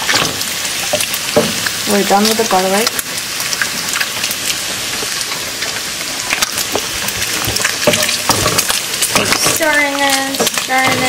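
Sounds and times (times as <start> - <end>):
bacon sizzling in a skillet: 0.0 - 11.0
spatula scraping and knocking pan: 6.6 - 11.0.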